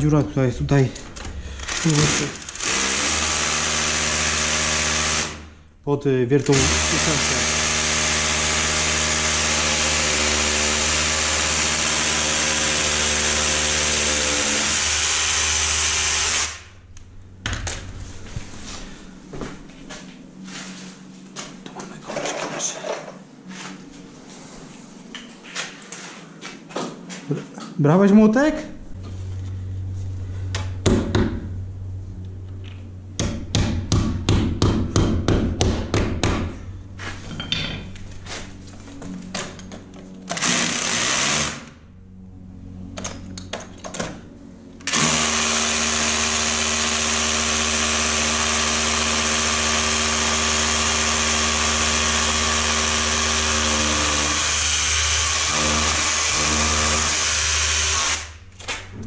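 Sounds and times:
hammer drill boring into concrete: 6.5 - 16.6, 44.9 - 58.3.

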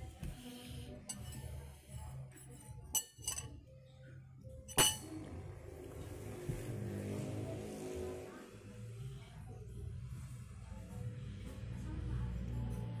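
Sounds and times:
spoons clinking against bowls: 2.8 - 3.6, 4.7 - 5.2.

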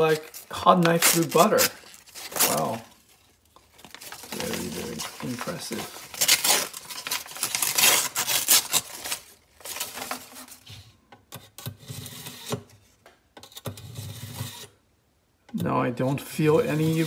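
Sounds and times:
knife slicing paper: 0.1 - 2.8, 4.0 - 10.2.

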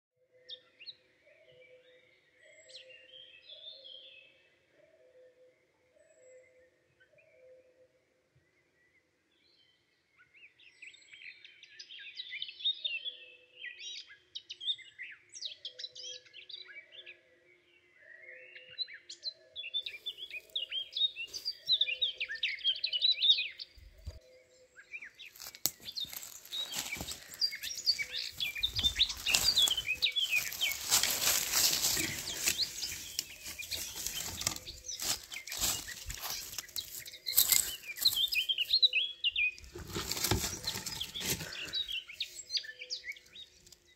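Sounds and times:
songbirds chirping: 0.3 - 43.9
loud rustling and crackling: 25.4 - 38.2, 39.6 - 41.8.

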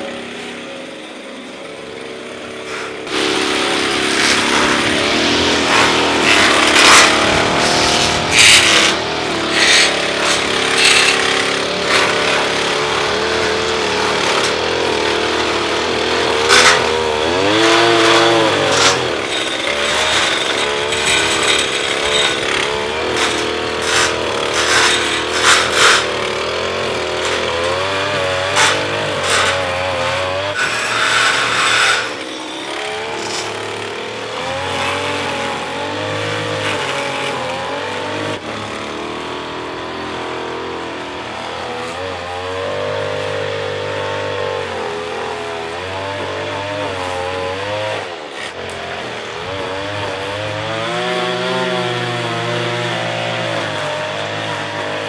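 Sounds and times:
string trimmer engine running: 0.0 - 55.0
sharp cracks: 3.2 - 12.8.

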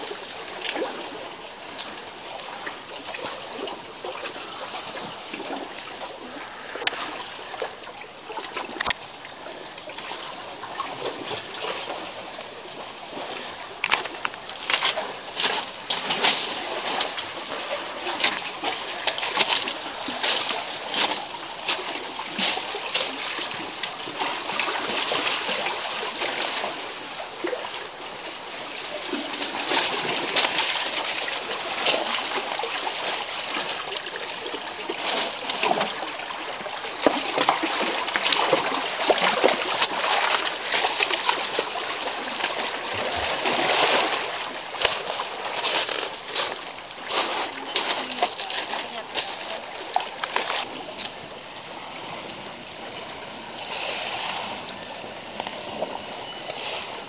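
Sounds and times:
sea water sloshing among rocks: 0.0 - 57.0.

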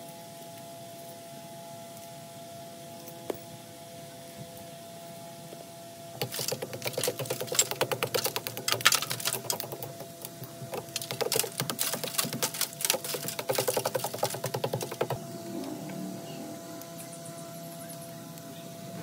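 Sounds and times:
steady hum: 0.0 - 19.0
rapid mechanical clicking: 6.2 - 15.3.

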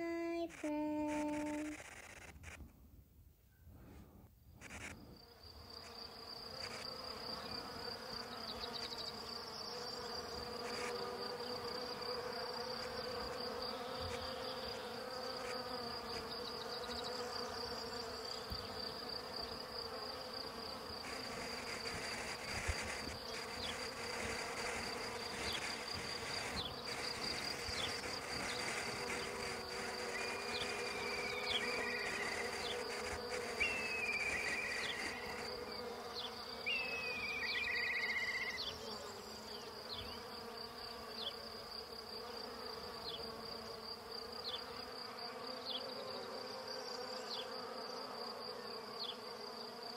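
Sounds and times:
bees buzzing: 0.0 - 2.3, 4.6 - 49.9
pulsing high-pitched chirr: 30.0 - 35.5.

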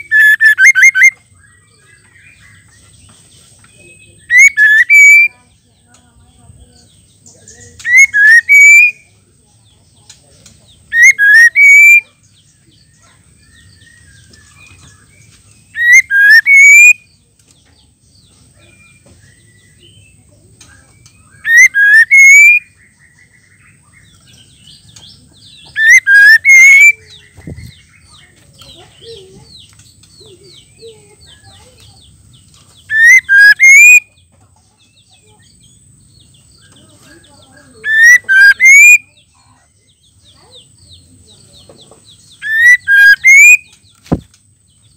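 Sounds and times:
bird whistled calls: 0.0 - 1.3, 3.9 - 5.4, 7.8 - 9.1, 10.9 - 12.2, 13.4 - 17.1, 20.9 - 23.2, 25.4 - 28.2, 32.9 - 34.2, 37.8 - 39.3, 42.3 - 44.2
soft bird chirps: 0.0 - 44.9.

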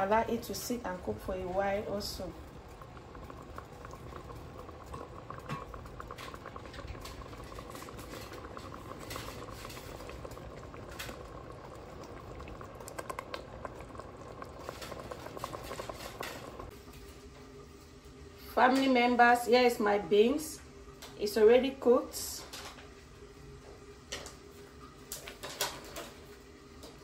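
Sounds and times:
sauce bubbling and popping: 1.1 - 16.8.

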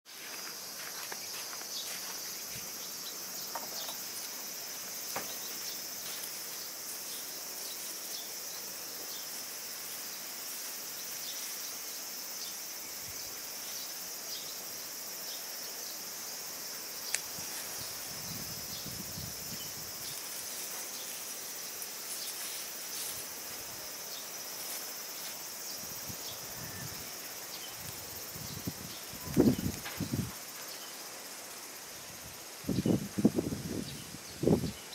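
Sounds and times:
insects buzzing chorus: 0.1 - 34.9
plants rustling: 17.1 - 30.7.

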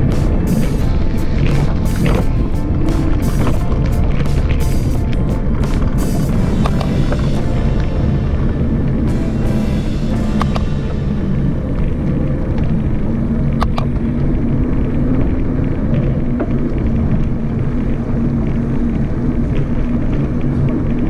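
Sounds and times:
road and tyre noise: 0.0 - 21.0
wind buffeting the microphone: 0.0 - 21.0.

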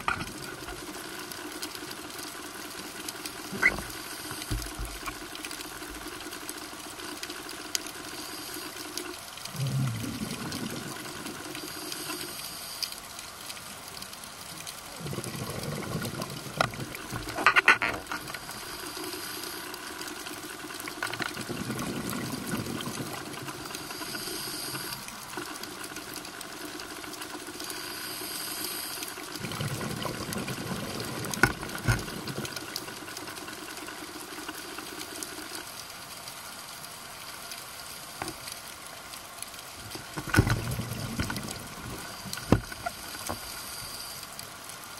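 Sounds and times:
bubbles rumbling: 9.5 - 11.6, 14.9 - 18.3, 20.5 - 23.9, 29.4 - 33.6, 39.9 - 43.1.

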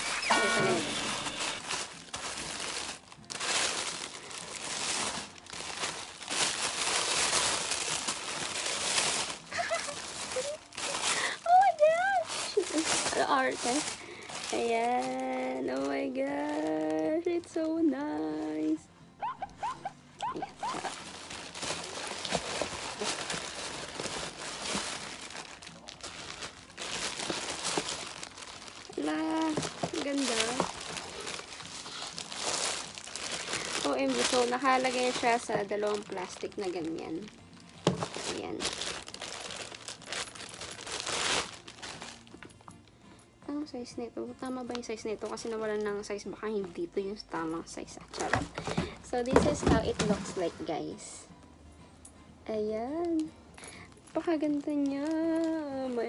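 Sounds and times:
tissue paper and plastic crinkling: 0.0 - 42.9, 53.0 - 56.0
woman speaking: 28.9 - 30.7, 33.8 - 37.3, 49.1 - 51.3, 54.2 - 56.0.

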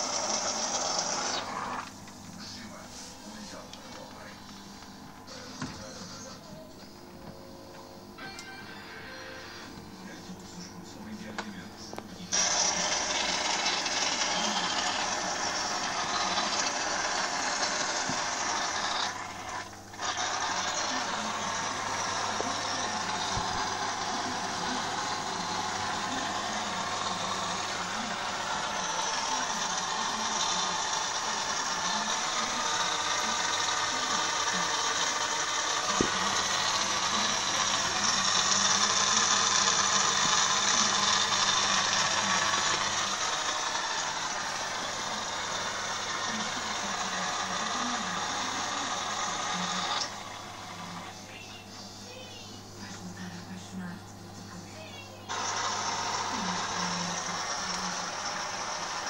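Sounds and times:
filter low hum: 1.5 - 12.3.

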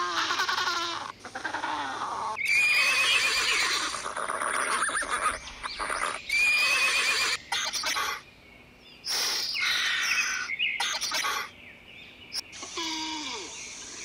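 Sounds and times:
horses whinnying: 0.0 - 7.4.

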